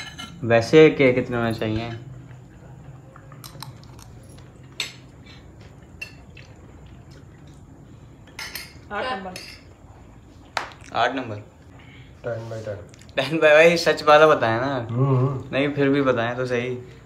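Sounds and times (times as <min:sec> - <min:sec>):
cutlery clinking on ceramic plate: 0:00.0 - 0:00.4
low background hum: 0:00.0 - 0:17.0.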